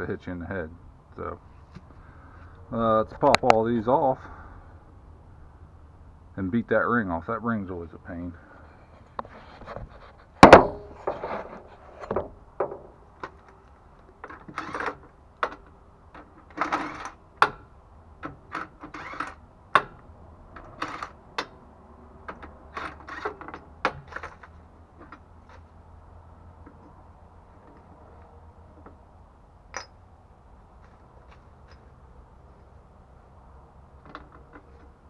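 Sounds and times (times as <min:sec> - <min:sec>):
loud metal knock: 0:10.4 - 0:11.0
hand tools clinking on metal: 0:29.7 - 0:30.0.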